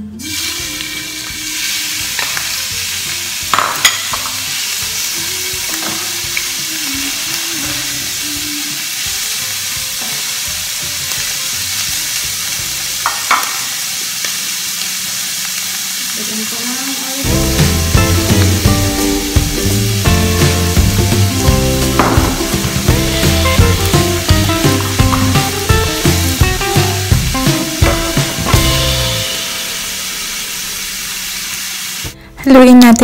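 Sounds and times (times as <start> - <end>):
beef sizzling in a pan: 0.2 - 32.2
wooden spatula knocking pan: 21.9 - 22.8.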